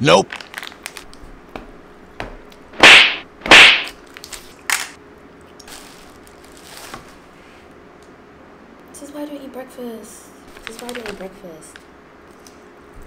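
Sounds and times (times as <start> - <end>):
sharp click: 2.8 - 3.9.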